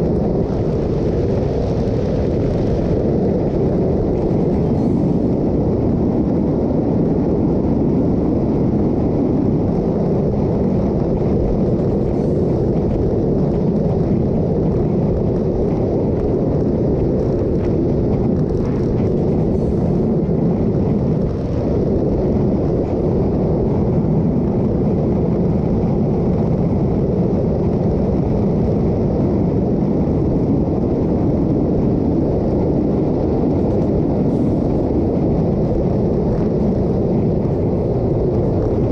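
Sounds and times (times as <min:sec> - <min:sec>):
motorcycle road and engine noise: 0:00.0 - 0:38.9
wind buffeting microphone: 0:00.0 - 0:38.9.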